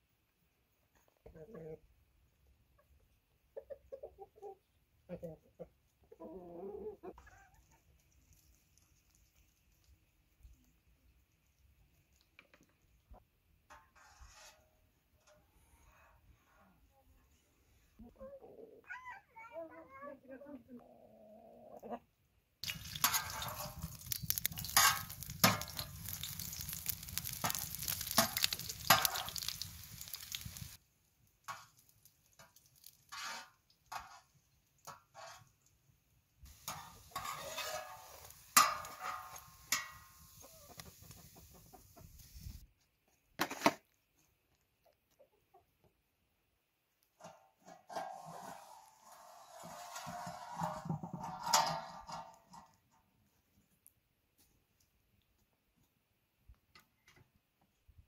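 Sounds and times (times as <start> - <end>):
utensil scraping a pan: 13.7 - 16.7, 22.6 - 30.8, 32.9 - 34.3, 34.9 - 35.5, 36.5 - 41.4, 47.2 - 52.7
food sizzling in a pan: 22.6 - 30.8, 36.5 - 42.6.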